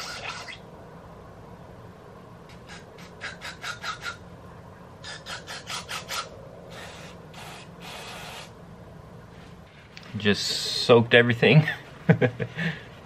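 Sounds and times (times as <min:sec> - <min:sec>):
aerosol can spraying: 0:06.7 - 0:08.6.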